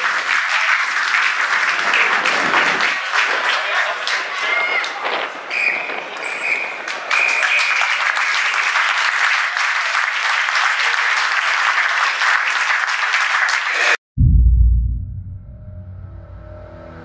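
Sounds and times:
spectators clapping: 0.0 - 5.4, 6.8 - 14.0.

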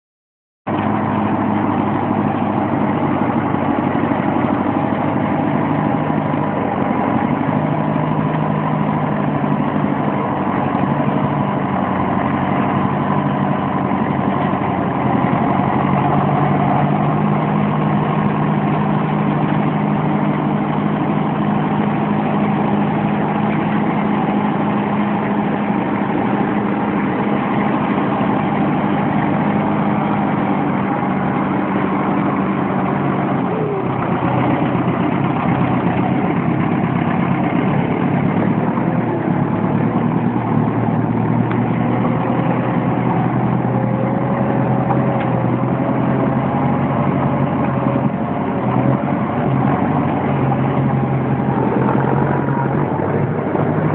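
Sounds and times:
tractor diesel engine idling: 0.7 - 53.9.

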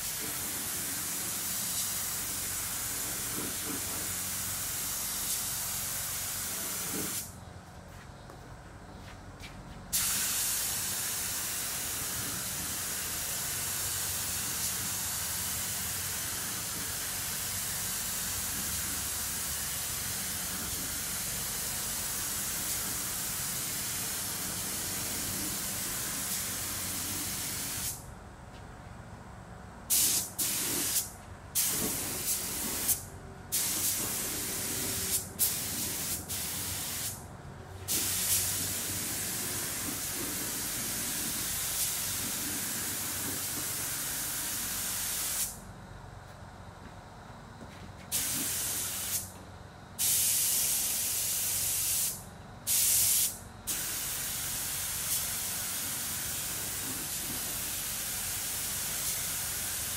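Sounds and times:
spray gun hissing: 9.9 - 18.9, 19.5 - 28.0, 29.9 - 37.2, 37.9 - 45.6, 48.1 - 49.3, 50.0 - 59.9.

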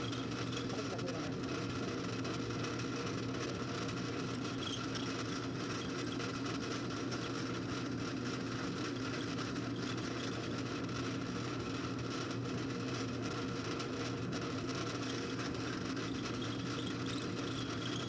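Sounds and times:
drill bit drilling metal: 0.0 - 1.3, 3.8 - 10.6, 14.9 - 18.0
drill press humming: 0.0 - 11.6, 14.8 - 18.0.

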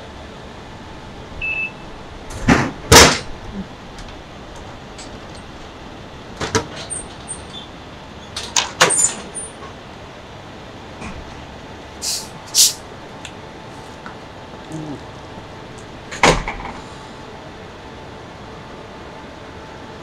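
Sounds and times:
vending machine beep: 1.4 - 1.9.

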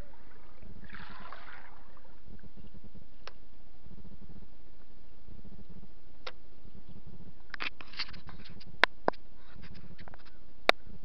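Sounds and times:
steady low rumble: 0.0 - 7.6.

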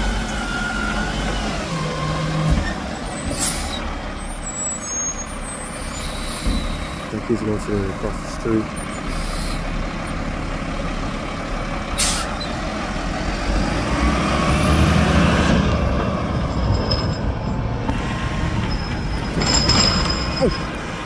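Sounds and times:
diesel truck engine accelerating: 0.0 - 21.0
air brake hiss: 9.1 - 9.6, 12.0 - 12.4.

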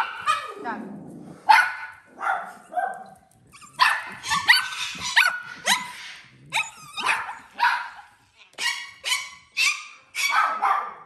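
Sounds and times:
small animal yipping: 3.5 - 7.6.

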